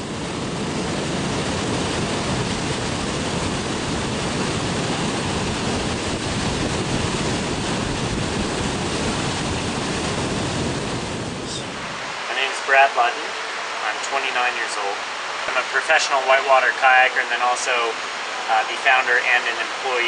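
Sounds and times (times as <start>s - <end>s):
river rapids rushing: 11.2s - 20.0s.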